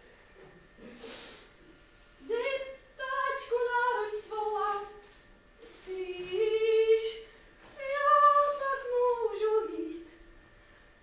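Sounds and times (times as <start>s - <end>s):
woman singing unaccompanied: 2.2s - 10.2s.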